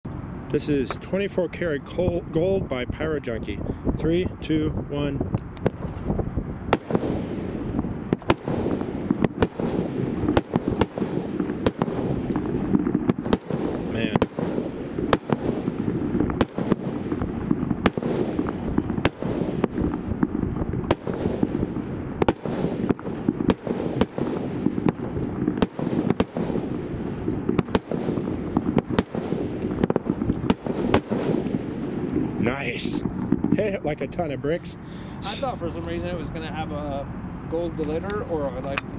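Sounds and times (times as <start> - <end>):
firework shots bursting: 5.2 - 34.0.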